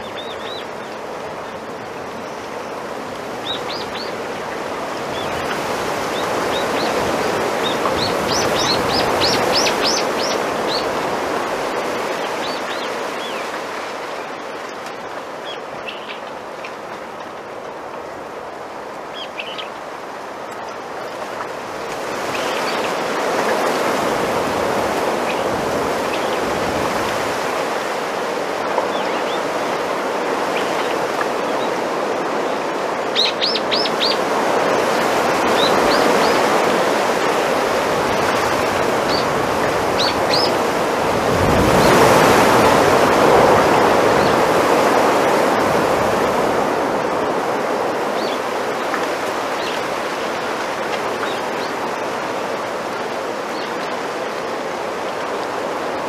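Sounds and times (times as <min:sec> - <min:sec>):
bamboo leaves rustling in wind: 0:00.0 - 0:56.0.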